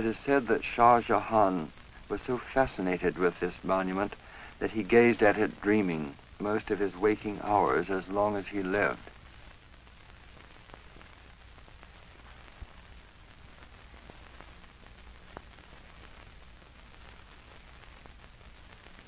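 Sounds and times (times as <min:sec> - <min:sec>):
person narrating: 0:00.0 - 0:09.1
film soundtrack hiss and hum: 0:00.0 - 0:19.0.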